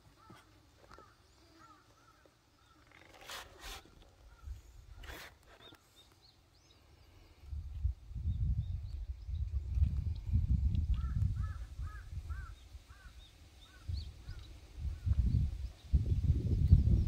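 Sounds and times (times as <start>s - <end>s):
rustling: 0.2s - 6.2s.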